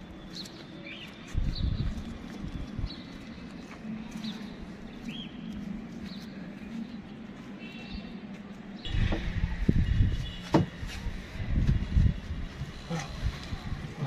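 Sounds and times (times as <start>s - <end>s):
low rumbling with sharp knocks: 8.9s - 10.9s.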